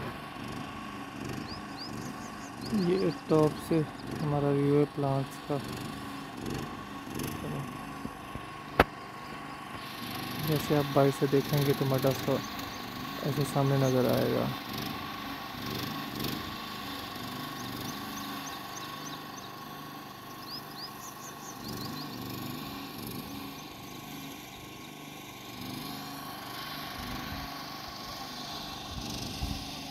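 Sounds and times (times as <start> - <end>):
distant engine running: 0.0 - 29.9
faint bird chirps: 17.5 - 22.3.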